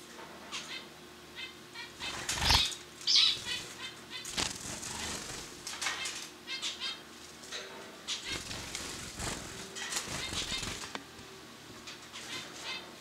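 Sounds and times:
bird wing flaps: 2.1 - 2.8, 3.4 - 6.1, 8.2 - 11.0.

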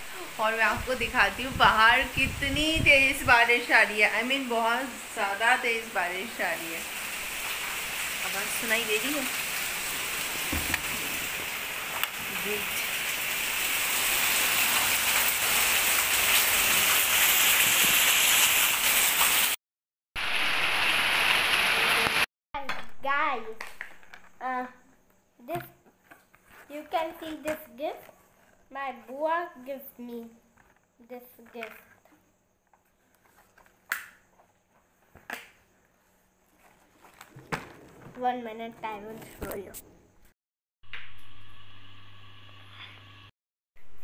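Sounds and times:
heavy rain on concrete: 0.0 - 19.6, 20.2 - 22.3
packaging handling noises: 36.5 - 38.2.

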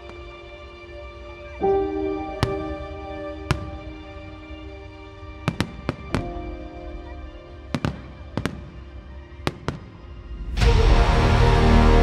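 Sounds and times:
music: 0.0 - 12.0
fireworks bursting: 2.3 - 4.7, 5.4 - 10.2.

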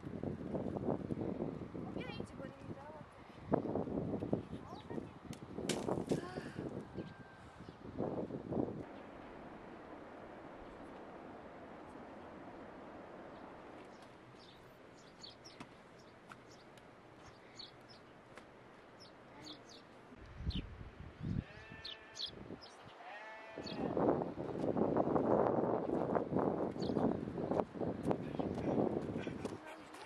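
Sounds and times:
livestock bleating: 21.4 - 22.3, 23.0 - 24.0.

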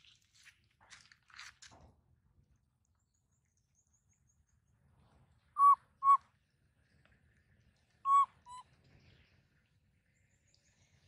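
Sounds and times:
short whistle-like calls: 5.6 - 6.2, 8.1 - 8.6.

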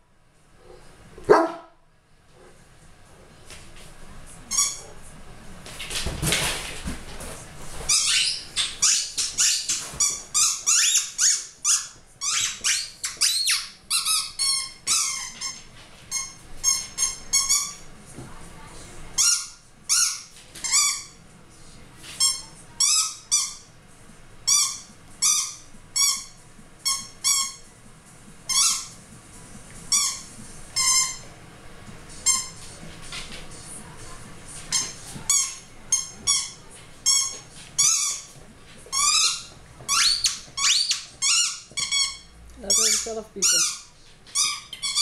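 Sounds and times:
squeaky toy squeaking: 7.9 - 17.8, 24.5 - 27.6, 28.5 - 29.0, 38.9 - 45.0.

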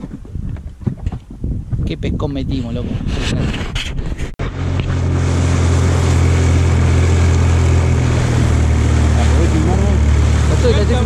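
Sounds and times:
outboard motor running: 4.4 - 11.0
wind and water hiss: 4.4 - 11.0.

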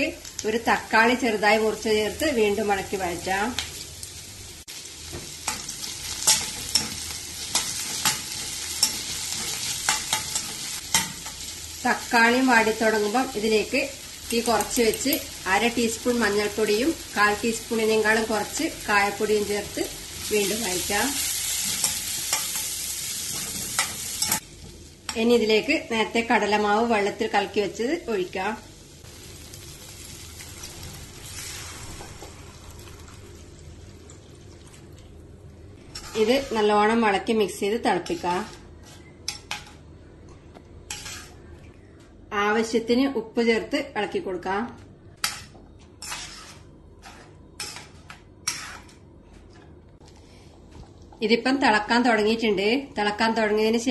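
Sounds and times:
vegetables sizzling in oil: 0.0 - 34.6
spatula scraping a steel pan: 36.0 - 36.7, 40.9 - 41.4, 46.0 - 49.0.

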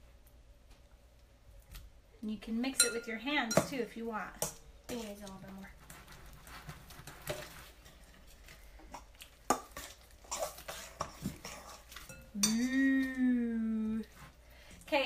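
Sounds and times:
spoon clinking and scraping bowl: 2.8 - 3.7, 9.5 - 12.8.

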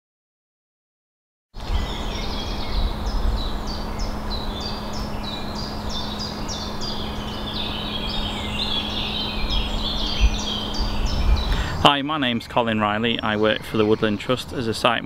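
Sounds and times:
low rumble: 1.6 - 11.7
birds chirping: 1.6 - 15.0
faint steady hum: 1.6 - 15.0.

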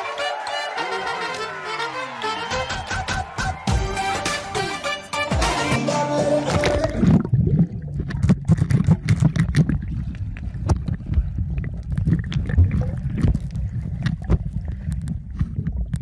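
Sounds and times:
bubbles popping: 6.5 - 16.0
underwater churning rumble: 6.6 - 16.0.

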